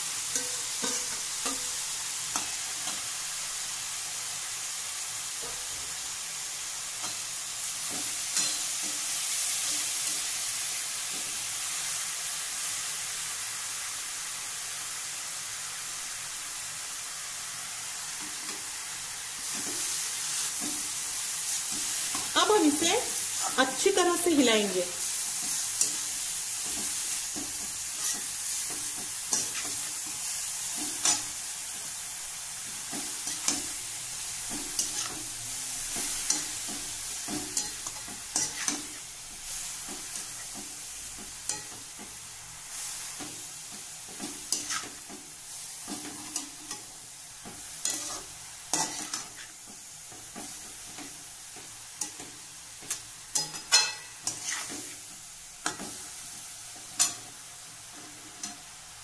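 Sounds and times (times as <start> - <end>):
radish sizzling in oil: 0.0 - 59.0
metal spatula scraping a pan: 25.0 - 31.4, 34.5 - 40.8, 44.1 - 45.2, 47.5 - 51.1, 52.0 - 55.0.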